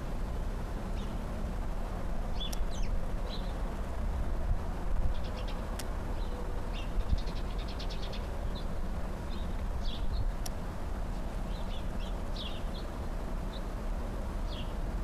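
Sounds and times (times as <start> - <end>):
small birds chirping: 0.8 - 1.2, 2.2 - 3.7, 5.0 - 13.8, 14.4 - 15.0.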